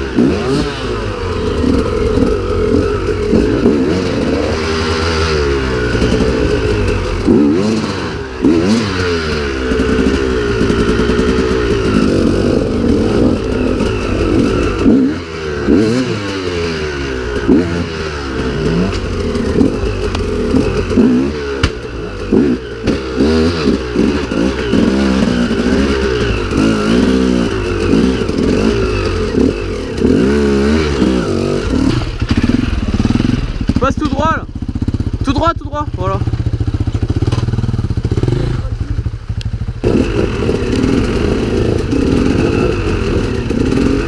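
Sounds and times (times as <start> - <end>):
motorcycle engine revving: 0.0 - 44.0
clatter and knocks from bike: 36.9 - 37.7.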